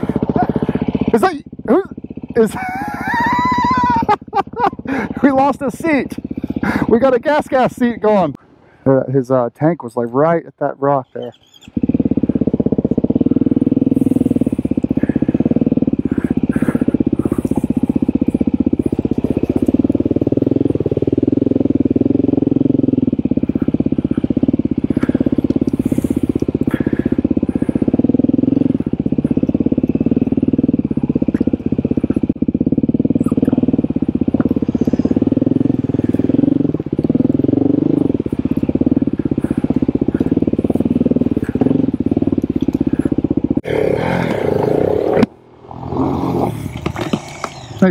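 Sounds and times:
dirt bike engine running: 0:00.0 - 0:47.9
bike clicks and rattles: 0:14.1 - 0:21.3, 0:23.3 - 0:32.8, 0:33.8 - 0:43.6, 0:46.6 - 0:47.9.

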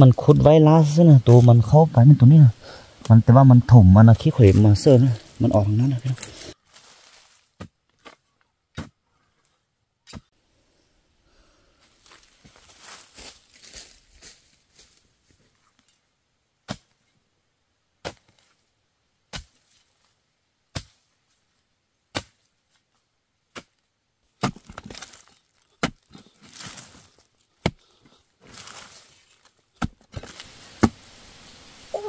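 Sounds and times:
soil scraping and shifting: 0:00.0 - 0:10.4, 0:23.5 - 0:32.0
wooden pole striking hard earth: 0:07.6 - 0:09.0, 0:18.0 - 0:18.5, 0:20.7 - 0:21.0, 0:22.1 - 0:22.5, 0:23.5 - 0:31.1.

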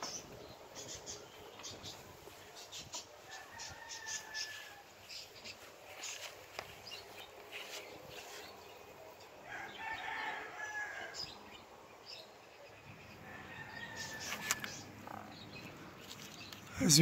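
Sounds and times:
rooster crowing: 0:03.3 - 0:05.0, 0:09.4 - 0:11.4, 0:13.2 - 0:15.0.

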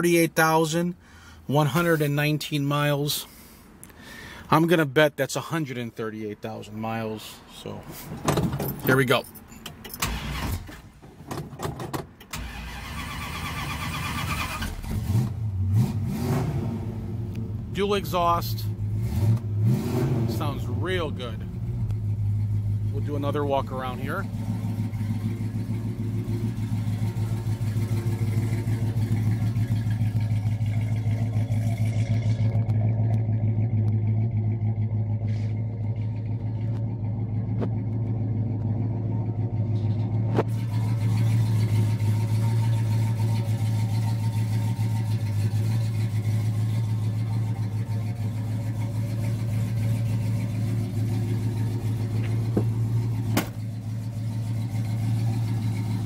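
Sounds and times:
car engine idling: 0:16.7 - 0:56.0.

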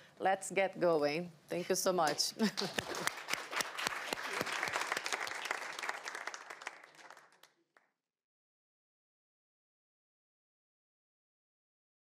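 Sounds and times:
audience applauding: 0:02.7 - 0:07.9.

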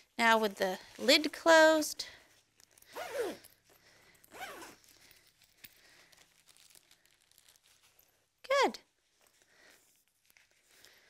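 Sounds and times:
handling of fabric bag: 0:00.0 - 0:08.4
zipper rasping shut: 0:02.8 - 0:03.6, 0:04.2 - 0:05.2.

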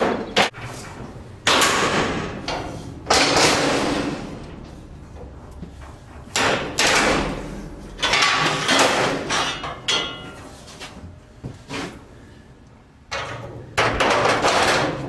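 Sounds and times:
metal clanks and scrapes: 0:00.0 - 0:11.0
ringing metal knocks: 0:08.0 - 0:10.4.

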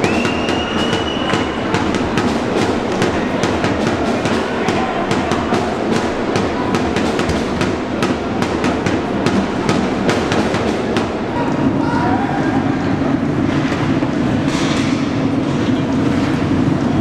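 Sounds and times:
sharp clacks: 0:00.0 - 0:11.3
drumming: 0:00.0 - 0:15.6
crowd noise: 0:00.0 - 0:17.0.

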